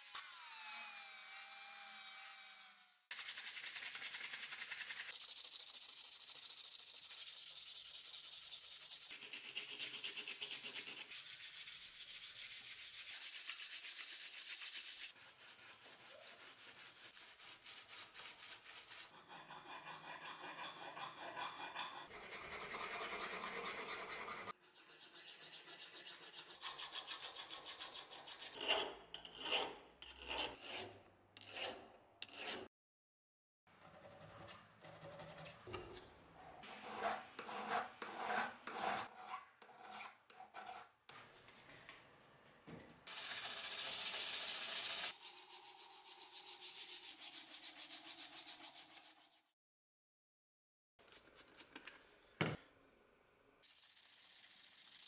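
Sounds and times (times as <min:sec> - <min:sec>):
sandpaper rubbing steel: 0:03.1 - 0:28.2, 0:43.1 - 0:49.6, 0:53.6 - 0:55.0
hand file rasping metal: 0:19.0 - 0:32.7, 0:36.6 - 0:40.9.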